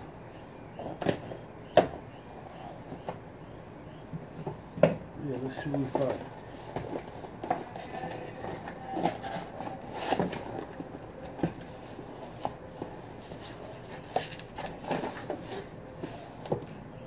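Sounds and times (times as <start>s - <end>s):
cardboard rubbing and scraping: 5.8s - 16.4s.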